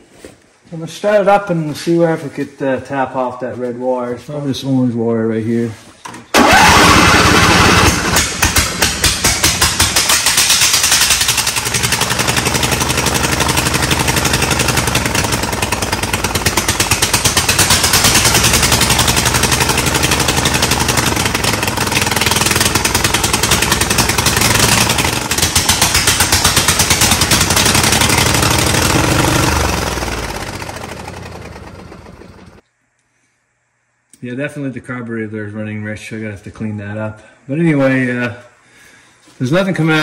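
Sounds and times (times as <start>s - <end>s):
lawn tractor engine running: 6.3s - 32.6s.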